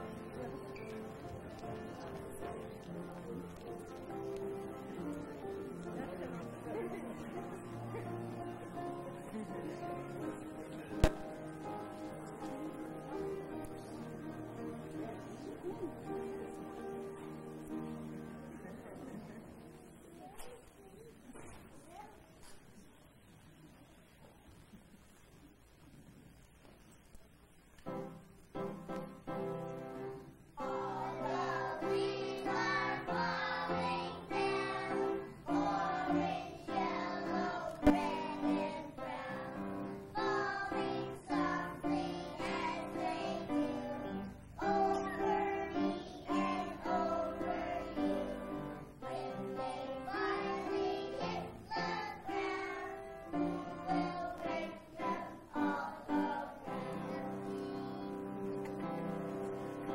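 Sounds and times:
sharp knock: 11.0s - 11.3s
children singing: 30.6s - 58.4s.

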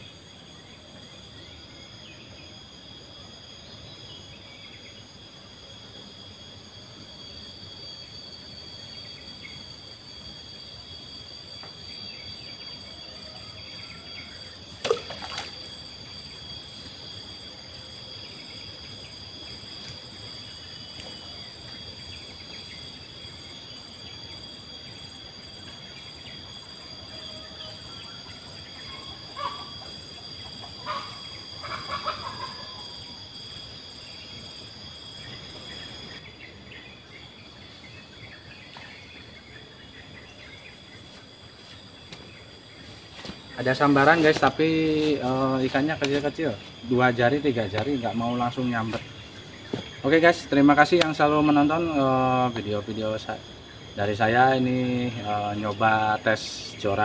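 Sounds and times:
high-pitched insect drone: 0.0s - 57.0s.

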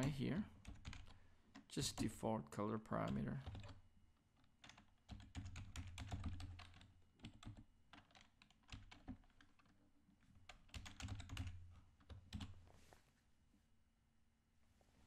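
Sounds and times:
typing on computer keyboard: 0.0s - 2.2s, 3.0s - 3.8s, 4.4s - 9.8s, 10.4s - 12.6s.

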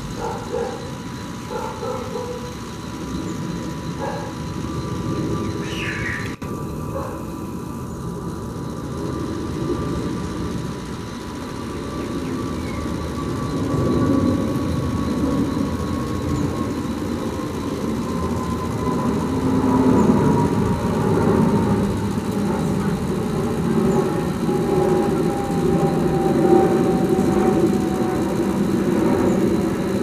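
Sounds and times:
jet engine whine: 0.0s - 30.0s
jet engines roaring overhead: 0.0s - 30.0s.

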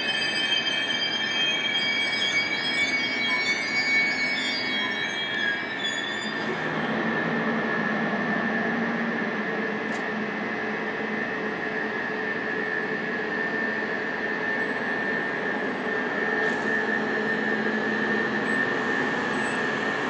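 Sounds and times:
train wheels squealing: 0.0s - 9.4s, 11.2s - 20.0s
train rolling noise: 6.4s - 20.0s.

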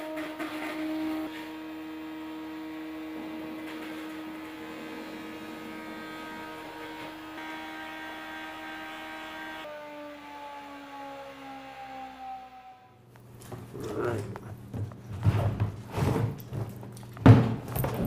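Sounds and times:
hammer mill shredding apples: 0.0s - 9.3s.

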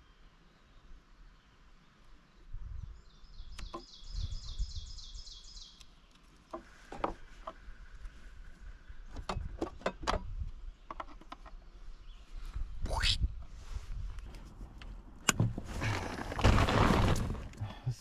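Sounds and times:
songbird trilling: 3.0s - 6.2s.

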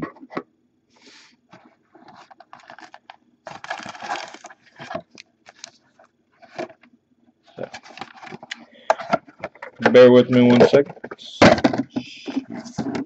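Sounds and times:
foil packs crinkling: 2.3s - 6.0s.

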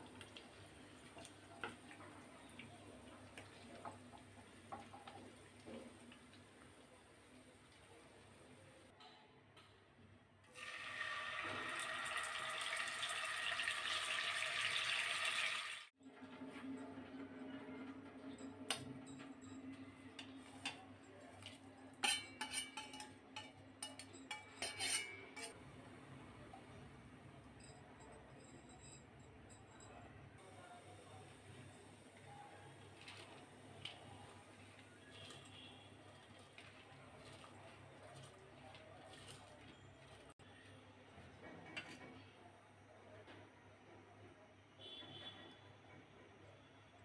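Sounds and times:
fish frying in hot oil: 10.6s - 15.9s
metal spoon scraping plate: 22.0s - 25.6s.

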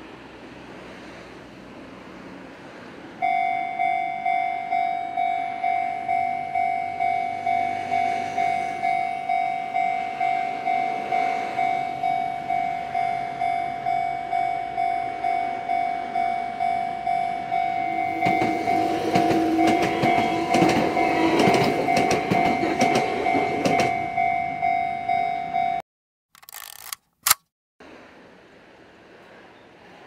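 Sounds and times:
level crossing warning bell: 3.2s - 25.8s.

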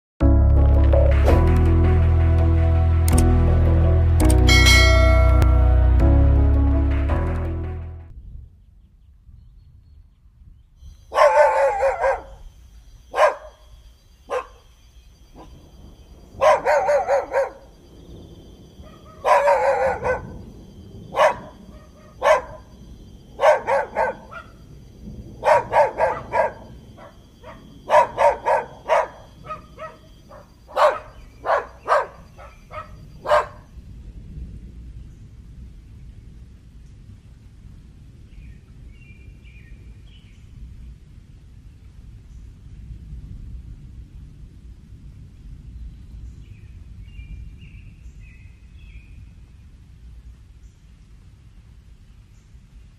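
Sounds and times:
dog barking: 11.1s - 12.5s, 13.1s - 13.7s, 14.3s - 14.7s, 16.4s - 17.7s, 18.8s - 20.5s, 21.1s - 22.8s, 23.4s - 24.6s, 25.4s - 33.7s.

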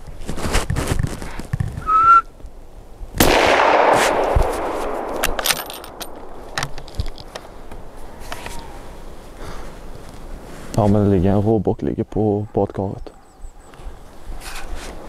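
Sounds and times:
short whistle: 1.8s - 2.3s
gunshot echoing through forest: 3.2s - 8.2s.

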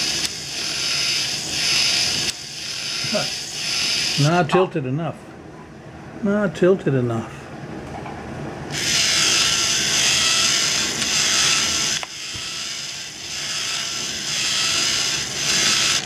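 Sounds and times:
toy gear mechanism rattling and whirring: 0.0s - 4.4s, 8.7s - 16.0s.

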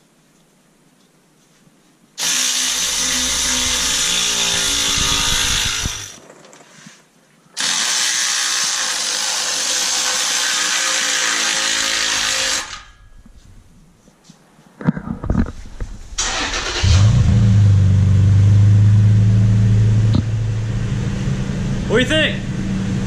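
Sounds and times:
cordless ratchet motor running: 2.2s - 6.2s.

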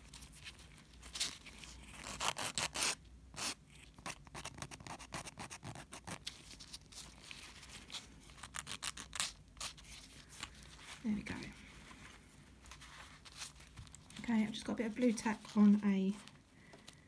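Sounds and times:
nail file scraping: 1.9s - 6.2s.

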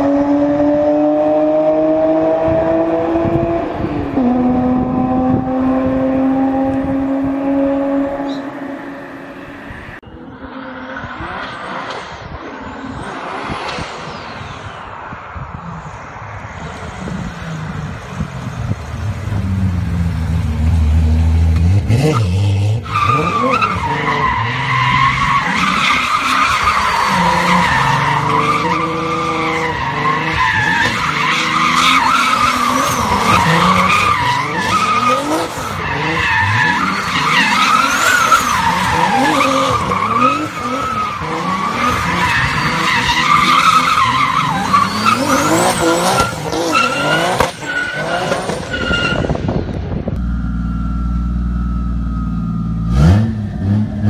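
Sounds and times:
car engine revving: 16.5s - 54.0s
tyres squealing: 22.0s - 49.3s.

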